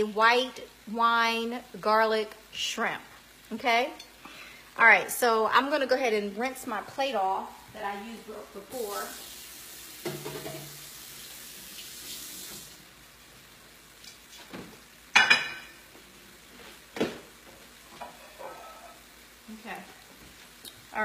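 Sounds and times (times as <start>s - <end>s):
tap water running: 8.6s - 13.4s.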